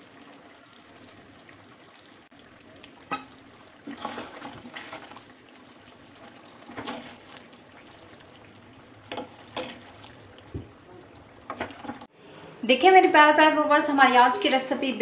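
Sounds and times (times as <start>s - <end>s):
metal ladle scraping a pan: 3.1s - 5.1s.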